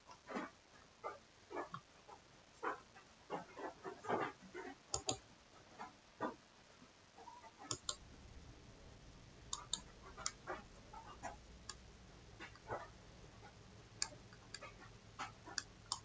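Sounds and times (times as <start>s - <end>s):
computer mouse clicking: 4.9s - 5.2s, 7.7s - 8.0s, 9.5s - 11.8s, 14.0s - 16.0s.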